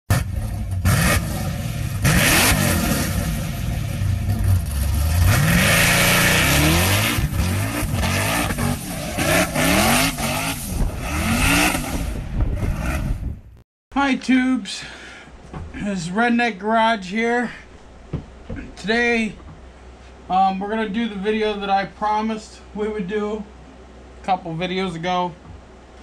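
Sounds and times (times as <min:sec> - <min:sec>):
engine revving hard: 0:00.1 - 0:13.4.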